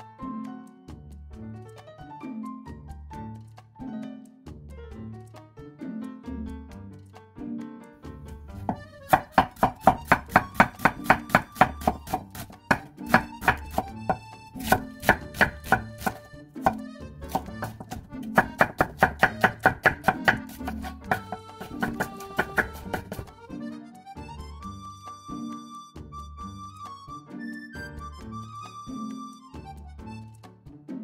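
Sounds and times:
knife chopping on wooden board: 8.5 - 23.3.

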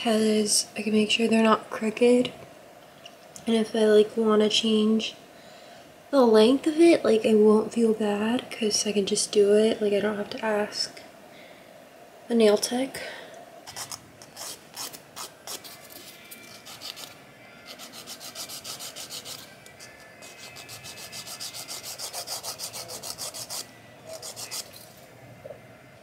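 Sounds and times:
nail file rasping on nails: 13.7 - 24.8.

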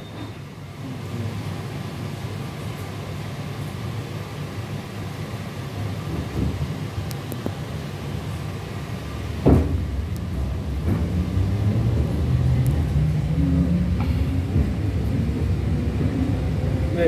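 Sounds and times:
train wheels rumbling on track: 0.0 - 17.0
sharp thump: 9.4 - 10.0.

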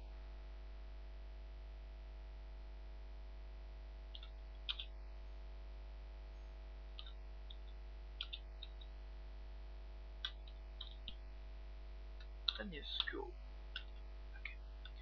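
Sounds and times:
low mains hum: 0.0 - 15.0
keyboard keys clicking: 4.2 - 4.9, 7.0 - 8.9, 13.8 - 14.0.

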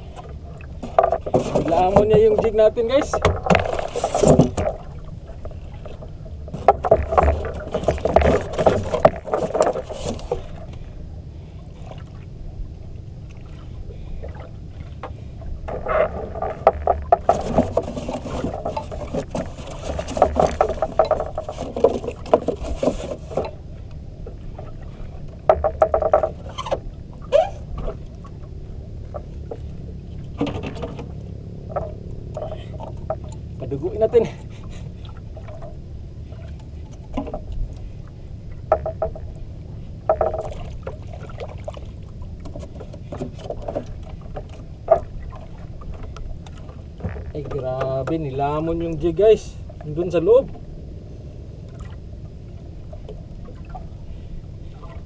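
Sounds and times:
low rumble: 0.0 - 55.0
knocking and scraping: 0.2 - 4.9, 5.8 - 10.8, 15.7 - 23.6, 25.4 - 28.0, 30.4 - 31.1, 38.7 - 39.3, 40.0 - 41.0.

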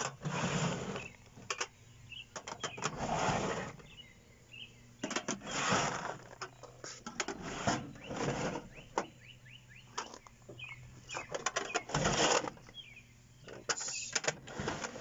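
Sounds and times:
small birds chirping: 0.8 - 14.3
metal drawers sliding: 7.1 - 8.7.

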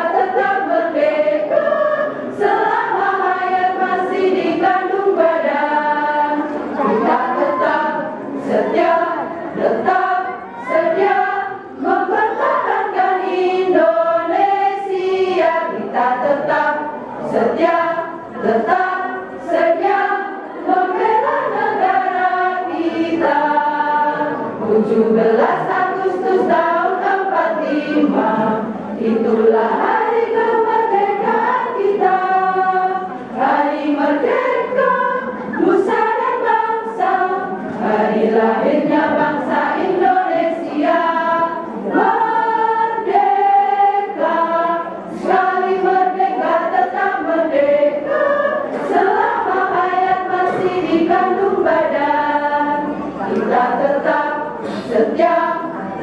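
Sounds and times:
women's choir singing: 0.0 - 56.0.

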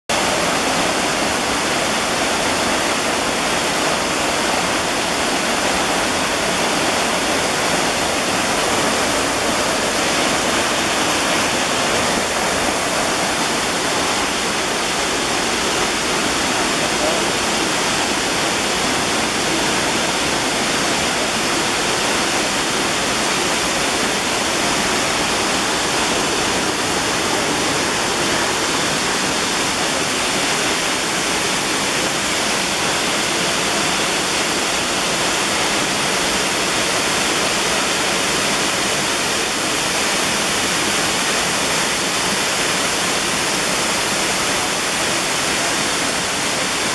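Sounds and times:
waterfall roaring: 0.1 - 46.9.

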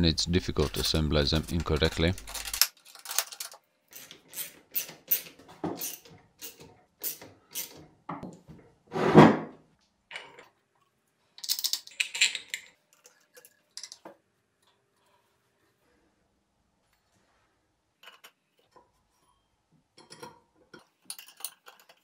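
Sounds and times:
metal parts clicking: 0.6 - 7.8, 11.4 - 14.0, 21.0 - 22.0.

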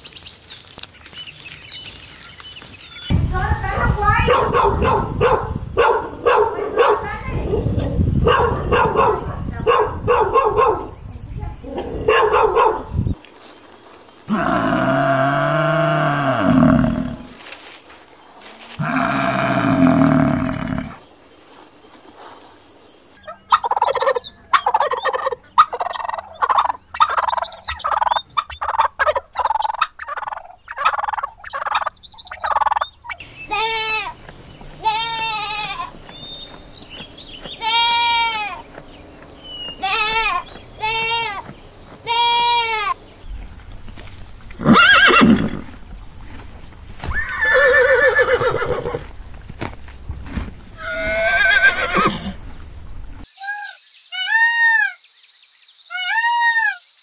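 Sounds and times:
horses whinnying: 14.3 - 17.4, 18.8 - 21.0, 44.5 - 45.8, 47.0 - 49.1, 50.8 - 52.6
young goats bleating: 18.7 - 21.0, 33.4 - 36.3, 37.4 - 43.0, 50.8 - 52.4.

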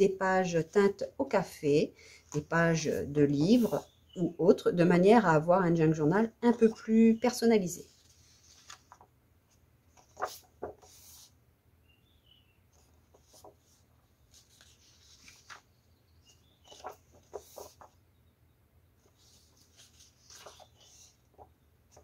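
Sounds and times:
paper rustling and sliding: 7.8 - 11.4, 12.7 - 15.8, 16.6 - 18.0, 19.0 - 22.0.

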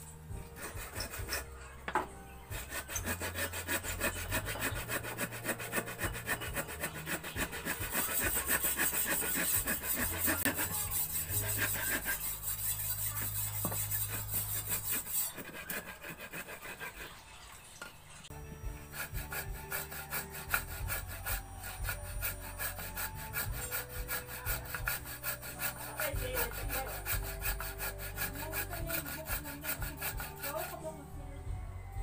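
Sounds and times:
hand saw cutting wood: 0.3 - 1.7, 2.5 - 17.2, 18.6 - 31.0.

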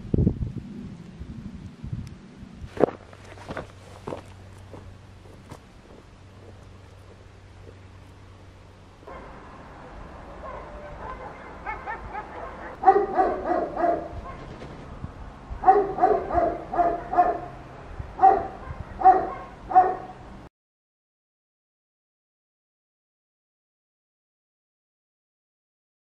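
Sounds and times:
dog barking: 9.0 - 9.4, 10.3 - 14.5, 15.6 - 17.6, 18.2 - 20.2.

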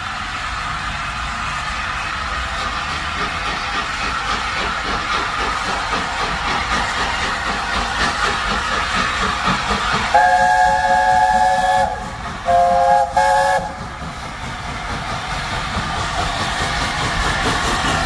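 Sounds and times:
steam engine hiss and rumble: 0.0 - 18.0
steam locomotive chime whistle: 10.1 - 13.9.

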